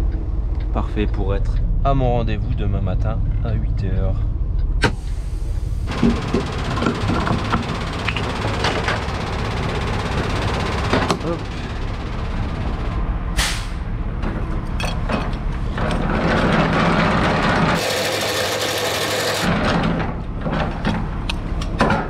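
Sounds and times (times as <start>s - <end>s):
diesel truck idling: 4.1s - 19.5s.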